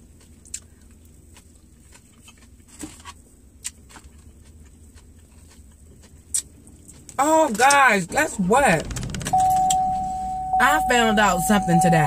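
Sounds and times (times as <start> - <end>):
mouth smacking and chewing: 0.0 - 7.2.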